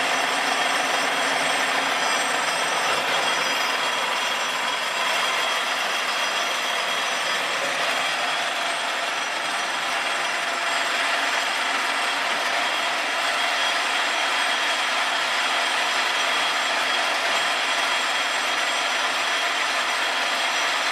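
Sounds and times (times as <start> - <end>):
screw machine running: 0.0 - 20.9.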